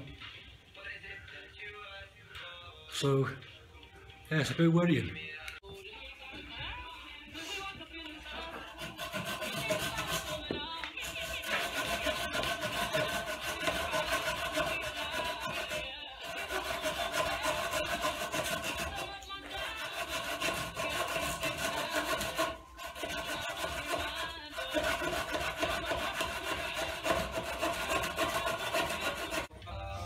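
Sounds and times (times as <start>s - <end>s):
knife scraping wooden log: 8.4s - 29.5s.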